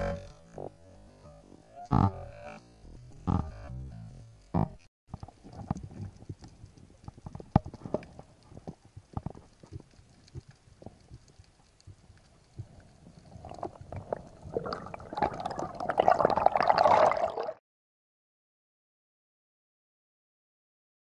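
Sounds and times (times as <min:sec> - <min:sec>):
underwater knocks and clicks: 0:04.6 - 0:16.8.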